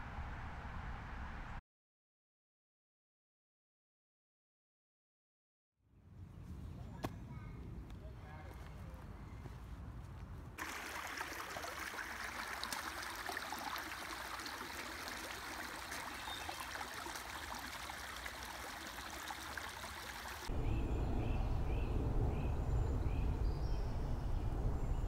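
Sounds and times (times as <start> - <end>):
creek water over stones: 10.6 - 20.5
deep low rumble: 20.5 - 25.0.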